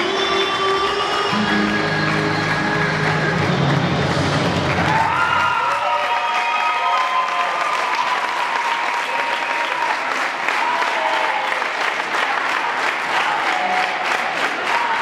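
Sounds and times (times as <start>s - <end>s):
music: 0.0s - 5.6s
audience applauding: 1.0s - 15.0s.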